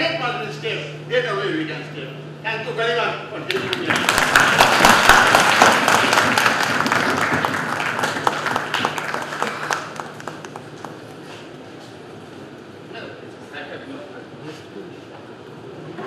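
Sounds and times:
audience applauding: 3.5 - 11.4.

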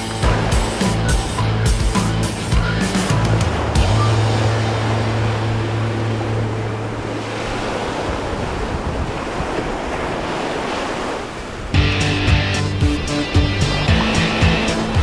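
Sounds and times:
music with a beat: 0.0 - 4.2, 11.8 - 15.0
ocean surf rushing: 0.0 - 15.0
wind on microphone: 3.1 - 11.8.

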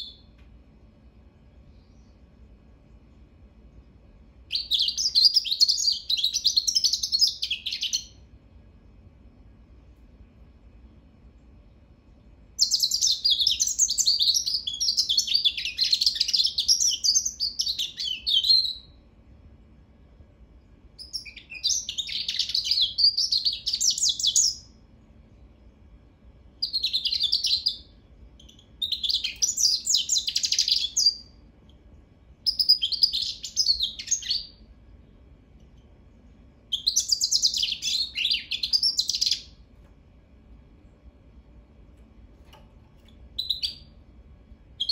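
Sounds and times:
bird twittering song: 4.5 - 8.2, 12.6 - 19.0, 21.0 - 24.7, 26.6 - 31.4, 32.4 - 34.6, 36.7 - 39.6, 43.0 - 44.0.

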